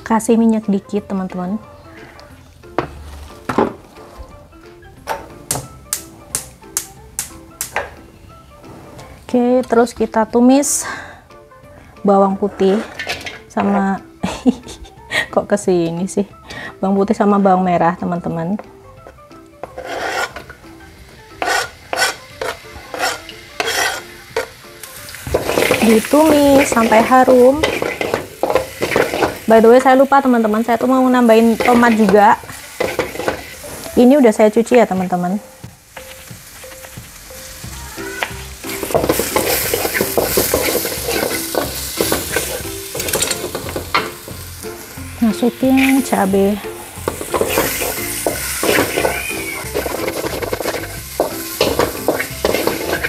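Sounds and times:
spatula scraping against wok: 12.4 - 13.9, 19.6 - 20.6, 21.3 - 24.6, 25.3 - 29.8, 30.7 - 34.1, 38.1 - 44.3, 45.6 - 53.0
shallots and garlic sizzling in oil: 12.4 - 14.8, 16.8 - 53.0
knife scraping cutting board: 19.6 - 20.5, 21.4 - 24.5.

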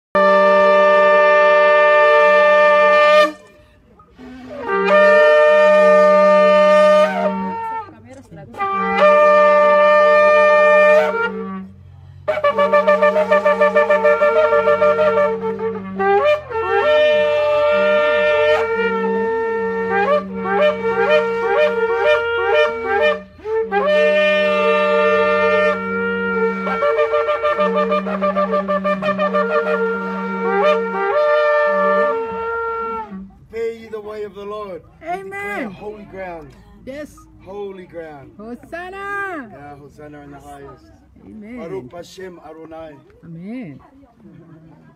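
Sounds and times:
shofars blowing long blasts: 0.2 - 34.4.

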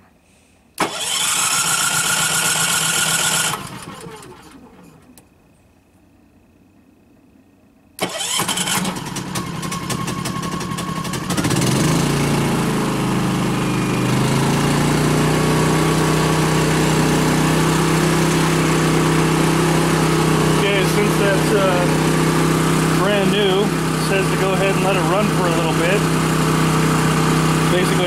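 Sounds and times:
generator engine cranking with clicking: 0.7 - 5.4, 8.0 - 12.8
generator running steadily: 0.7 - 28.0.

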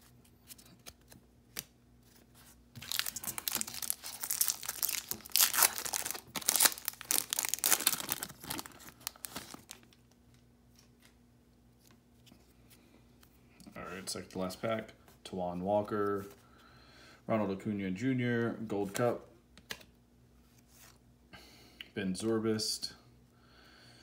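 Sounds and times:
foil wrapper tearing and crinkling: 2.8 - 10.0.

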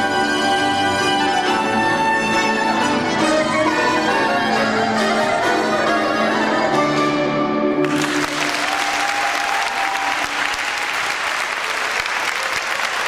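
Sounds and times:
accordion flute and guitar band: 0.0 - 7.8
audience applause: 7.8 - 13.0.

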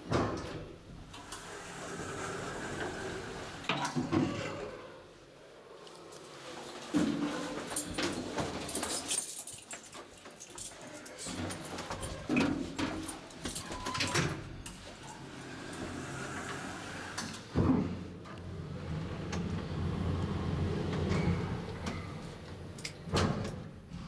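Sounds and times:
low hum of elevator drive: 18.2 - 23.7.

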